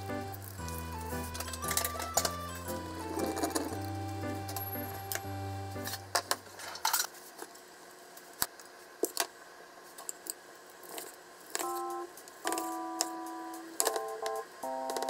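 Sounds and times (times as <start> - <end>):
light plucked music: 0.0 - 6.3.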